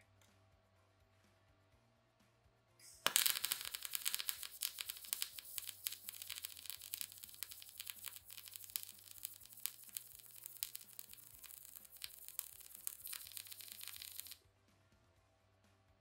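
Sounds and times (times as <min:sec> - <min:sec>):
welding arc crackling: 0:03.0 - 0:14.4.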